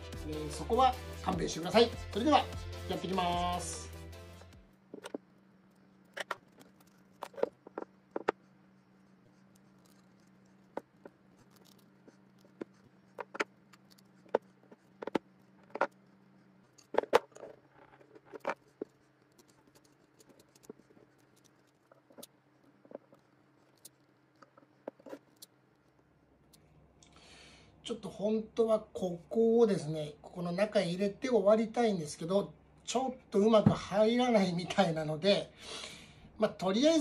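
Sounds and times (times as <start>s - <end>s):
faint steady hum: 0.0s - 37.0s
cord rustling: 4.6s - 26.6s
tools clicking and knocking on table: 4.9s - 5.3s, 6.0s - 8.4s.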